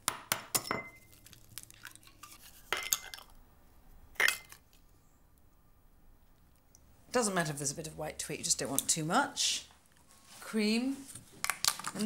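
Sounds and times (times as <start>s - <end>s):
glass jar clinking: 0.6s - 1.1s.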